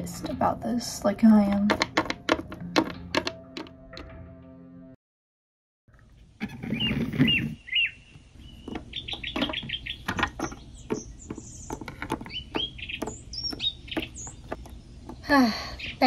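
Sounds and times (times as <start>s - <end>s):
small birds chirping: 6.4s - 16.0s
rising whistled bird calls: 6.6s - 11.7s.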